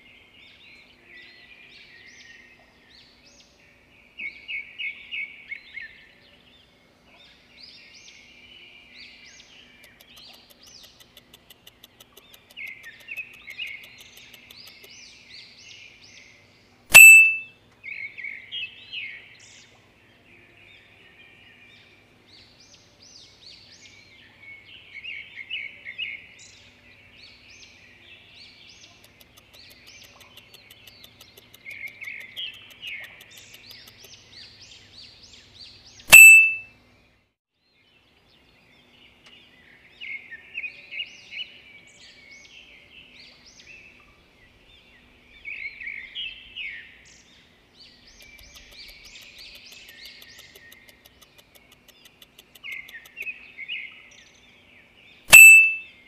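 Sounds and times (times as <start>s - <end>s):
birds chirping and trilling: 0.0s - 36.6s, 37.9s - 56.0s
bright ringing ding: 16.9s - 17.5s, 36.1s - 36.6s, 55.3s - 55.8s.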